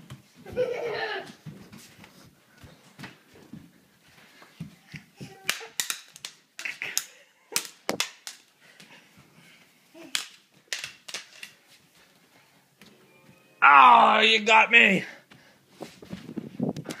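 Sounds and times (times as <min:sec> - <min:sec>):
toy swords clacking: 0:05.2 - 0:08.6, 0:10.0 - 0:11.6.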